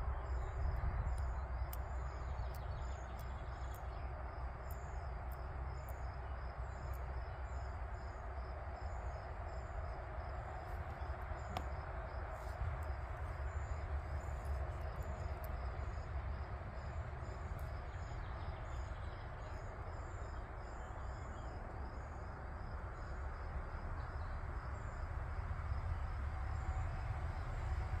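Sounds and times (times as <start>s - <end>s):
insects chirping: 0.0s - 28.0s
low rumble and hiss: 0.0s - 28.0s
faint clicks: 0.7s - 4.0s, 10.8s - 11.7s, 17.5s - 17.8s.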